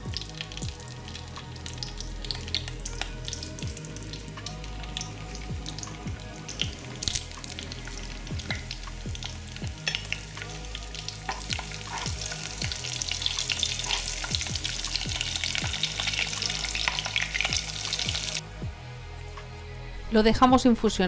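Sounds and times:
oil sizzling in a saucepan: 0:00.0 - 0:18.4
metal spoon stirring: 0:11.3 - 0:12.4, 0:13.0 - 0:14.3.

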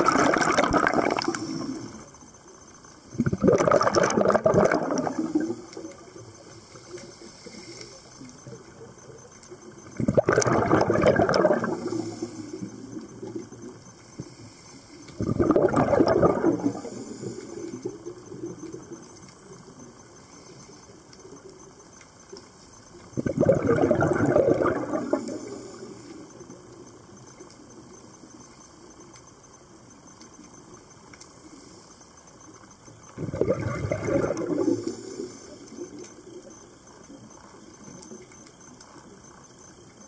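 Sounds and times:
regulator exhaling bubbles underwater: 0:00.0 - 0:02.1, 0:03.1 - 0:08.6, 0:09.7 - 0:14.4, 0:15.1 - 0:19.0, 0:23.1 - 0:26.4, 0:33.0 - 0:36.4
low steady hiss: 0:00.0 - 0:40.0.

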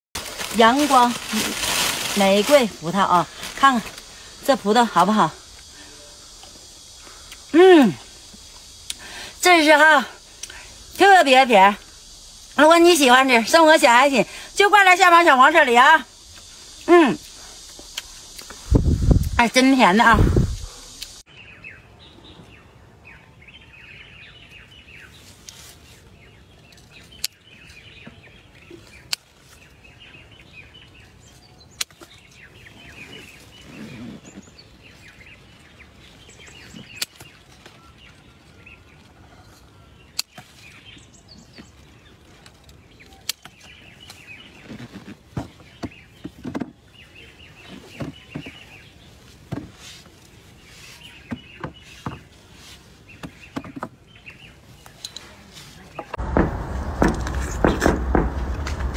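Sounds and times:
rustling and knocking of plants: 0:00.2 - 0:05.7, 0:25.1 - 0:58.9
small birds chirping: 0:00.3 - 0:58.9.

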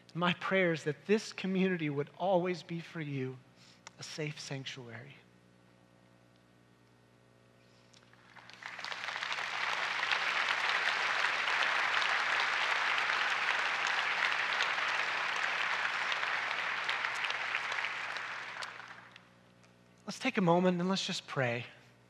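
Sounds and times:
congregation applauding: 0:08.0 - 0:19.2.

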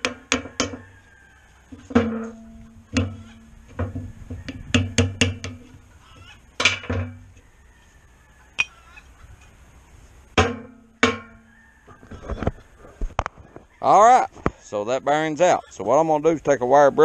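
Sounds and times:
hammer striking metal: 0:10.4 - 0:11.4.

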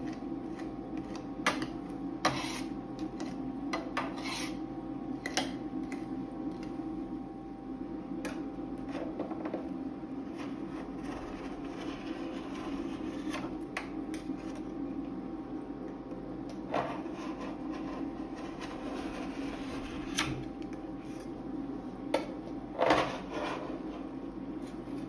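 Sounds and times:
steady low hum: 0:00.0 - 0:25.0
metal spatula scraping cold plate: 0:02.2 - 0:03.4, 0:04.0 - 0:04.6.

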